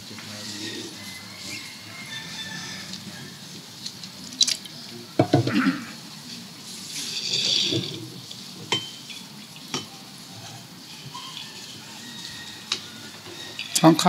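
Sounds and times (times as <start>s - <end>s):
crockery knocking and clinking: 8.7s - 9.9s.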